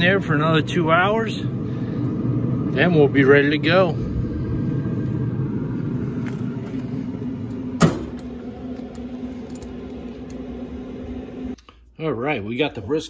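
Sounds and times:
steady low hum: 0:00.0 - 0:13.0
grill lid clanking shut: 0:07.8 - 0:08.3.

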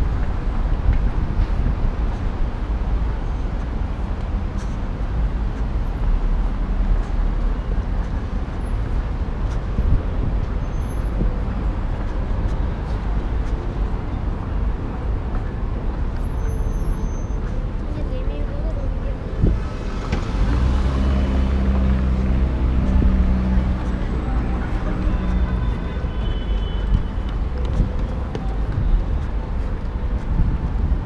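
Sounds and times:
road traffic rumble: 0:00.0 - 0:31.0.

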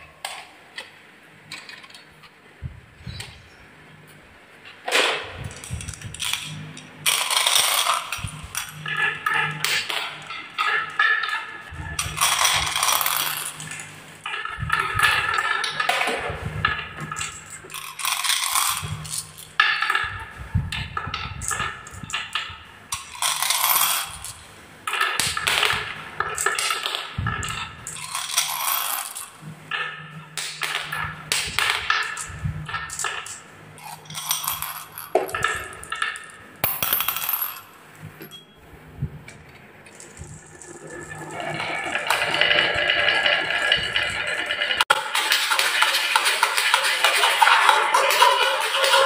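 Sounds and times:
glass marbles clicking: 0:05.5 - 0:13.9, 0:17.1 - 0:20.1, 0:21.4 - 0:25.6, 0:26.2 - 0:29.4, 0:30.4 - 0:38.6.

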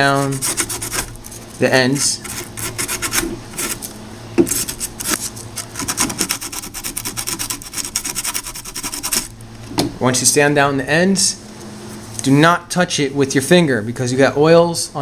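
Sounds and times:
sandpaper rubbing circuit board: 0:00.0 - 0:03.9, 0:04.5 - 0:09.3.

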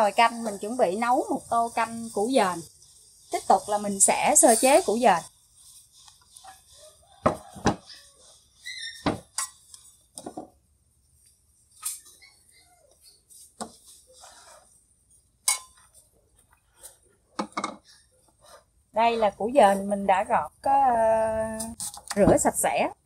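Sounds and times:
kitchenware knocking on wooden table: 0:07.2 - 0:07.8, 0:17.4 - 0:17.8.

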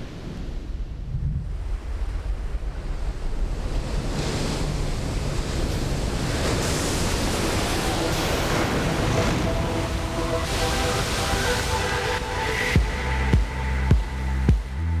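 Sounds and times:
ocean wave breaking: 0:00.0 - 0:14.8.

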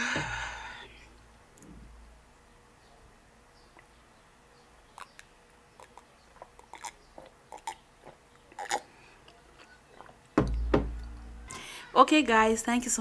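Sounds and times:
gulping and swallowing: 0:05.8 - 0:08.9.

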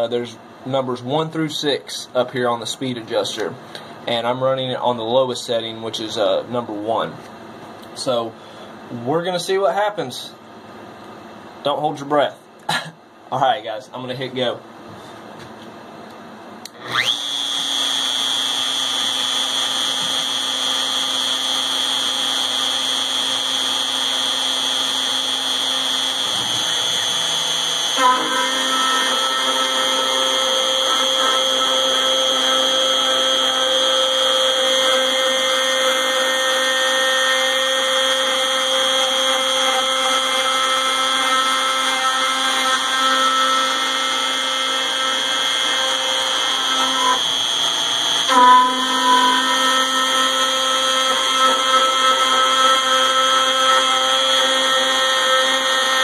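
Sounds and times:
bit cutting metal: 0:16.7 - 0:56.0
router spindle whining: 0:16.7 - 0:56.0.

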